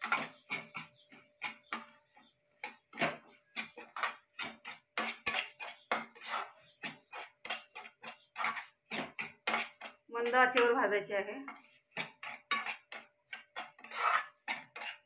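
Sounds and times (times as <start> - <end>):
spoon scraping and stirring in pan: 0.0 - 15.0.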